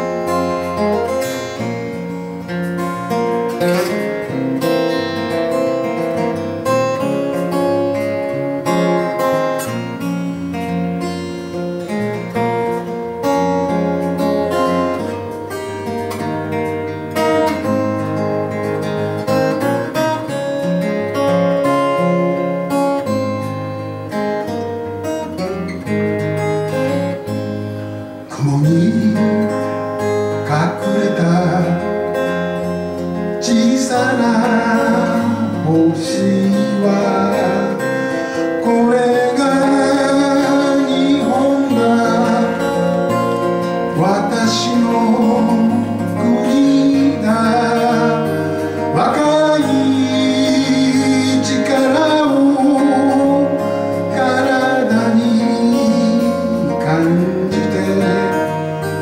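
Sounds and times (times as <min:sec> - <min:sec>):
acoustic guitar strumming: 0:00.0 - 0:59.0
man singing: 0:28.3 - 0:32.2, 0:33.2 - 0:59.0.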